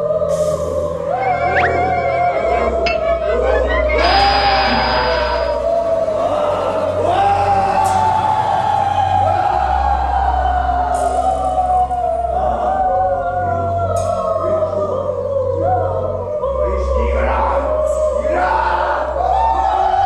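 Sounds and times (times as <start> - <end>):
choir-like voices: 0.0 - 20.0
deep bass drone: 0.0 - 20.0.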